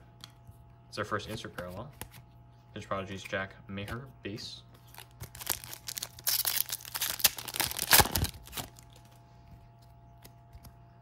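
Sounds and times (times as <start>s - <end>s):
foil wrapper tearing and crinkling: 4.9s - 9.1s.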